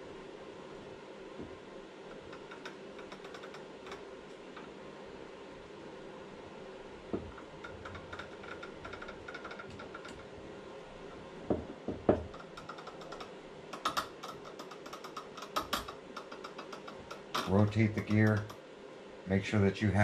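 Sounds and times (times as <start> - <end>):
light clicks and taps: 1.4 - 4.8, 7.1 - 10.3, 11.5 - 18.6
quick runs of small clicks: 2.1 - 4.7, 7.3 - 10.4.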